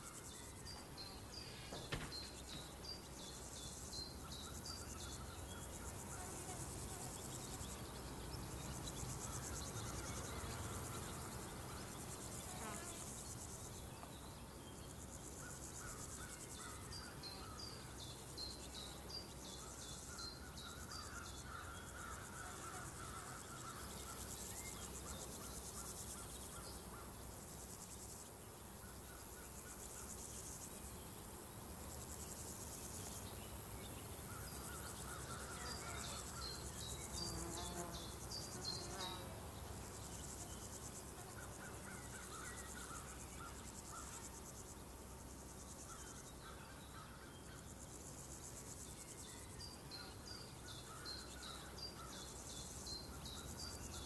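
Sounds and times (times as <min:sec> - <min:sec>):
high thin insect buzz: 0:00.0 - 0:03.7, 0:05.7 - 0:07.8, 0:08.4 - 0:13.7, 0:22.0 - 0:46.3
crickets and insects chirring: 0:00.0 - 0:54.0.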